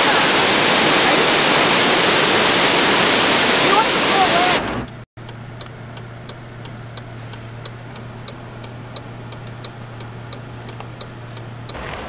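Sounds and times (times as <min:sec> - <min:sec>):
steady low hum: 0:04.9 - 0:11.9
faint regular tick: 0:05.2 - 0:11.8.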